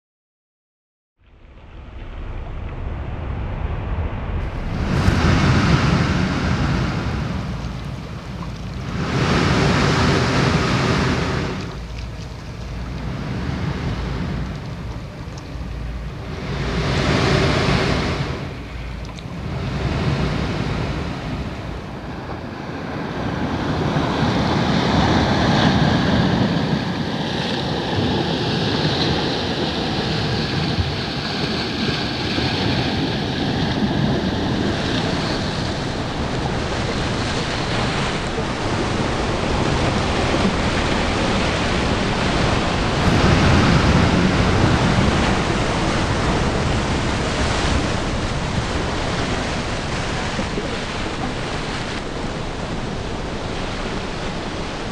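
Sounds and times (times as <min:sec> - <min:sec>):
surf washing over rocky shore: 0:01.7 - 0:54.9.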